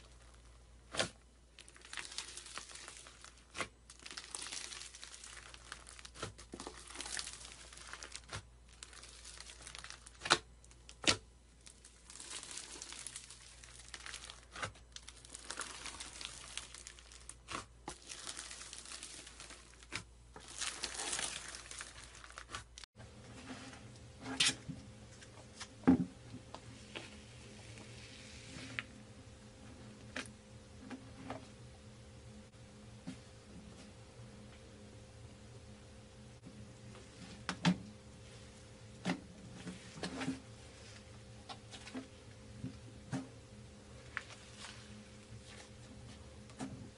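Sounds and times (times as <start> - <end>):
foam beads crinkling and rustling: 1.5 - 11.0, 11.6 - 22.9
low hum: 23.0 - 46.9.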